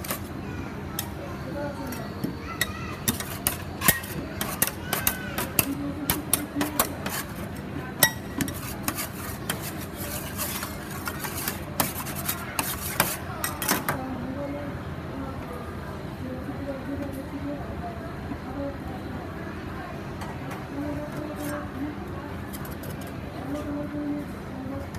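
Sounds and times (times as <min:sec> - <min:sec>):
metal spatulas clinking and scraping: 0:02.6 - 0:14.0.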